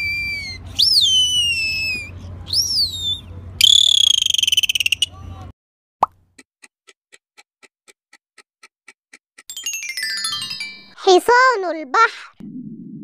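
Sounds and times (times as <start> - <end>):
dolphin whistles: 0.0 - 5.2
low underwater rumble: 12.4 - 13.0.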